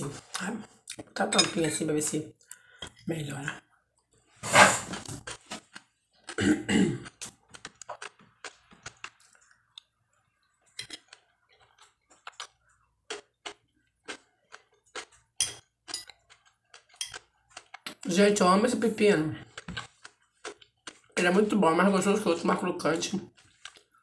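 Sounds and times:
cucumber crunching while chewed: 0:04.8 - 0:10.0, 0:10.7 - 0:18.1, 0:19.4 - 0:21.2, 0:23.3 - 0:24.0.

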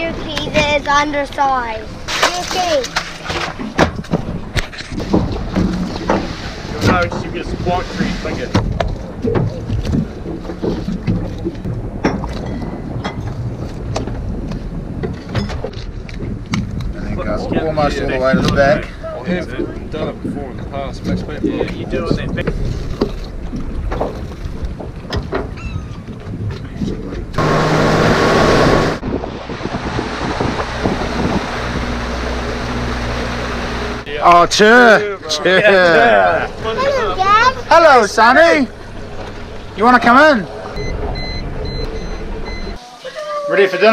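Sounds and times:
low wind and water rumble: 0:00.0 - 0:42.9
boat engine drone: 0:27.1 - 0:42.9.

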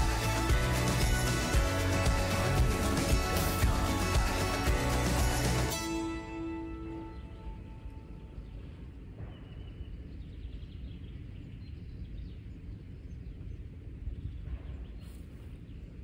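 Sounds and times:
bird chirp: 0:07.0 - 0:16.0
wind rumble on microphone: 0:08.0 - 0:16.0.

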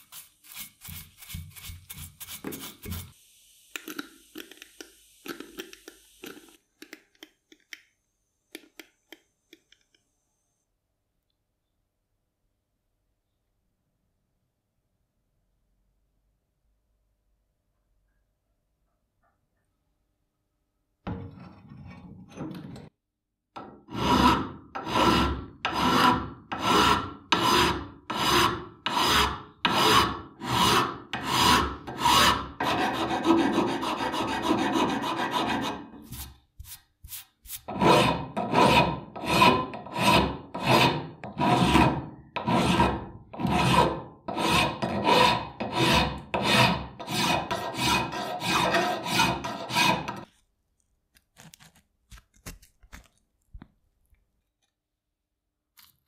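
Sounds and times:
file rasping on metal: 0:23.8 - 0:36.3, 0:37.6 - 0:50.3.

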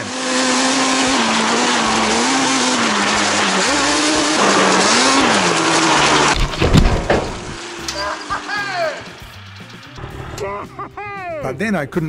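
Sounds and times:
quad bike engine revving: 0:00.0 - 0:10.6
heavy low thumps: 0:06.4 - 0:07.6.

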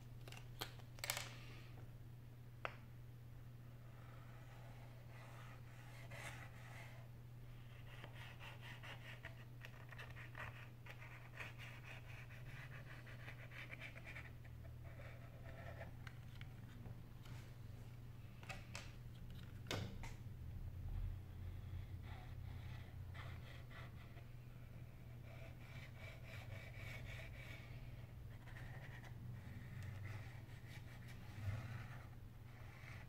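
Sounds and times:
steady low hum: 0:01.3 - 0:33.0.

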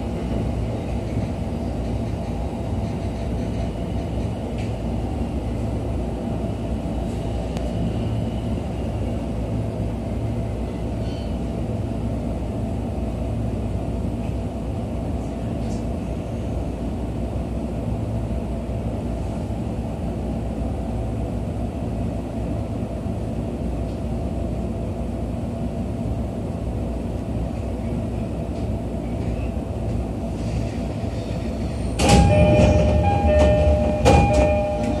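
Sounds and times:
train car low hum: 0:00.0 - 0:35.0
train doors sliding open: 0:27.5 - 0:35.0
two-tone door chime: 0:32.0 - 0:35.0.

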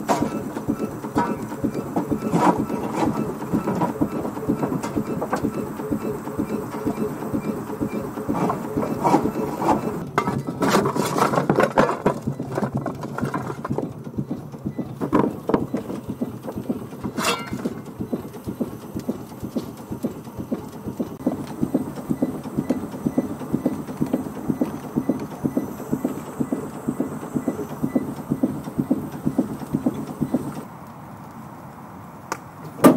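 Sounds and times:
steam engine rhythmic pulsing: 0:00.0 - 0:30.7
clattering and scraping: 0:01.2 - 0:05.5, 0:08.3 - 0:13.9, 0:17.0 - 0:17.8.

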